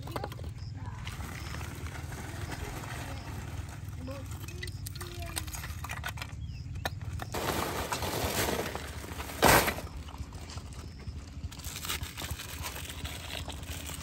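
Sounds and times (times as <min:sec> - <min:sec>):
loud clatter: 0:07.0 - 0:10.2
plastic bags crinkling: 0:07.3 - 0:10.0.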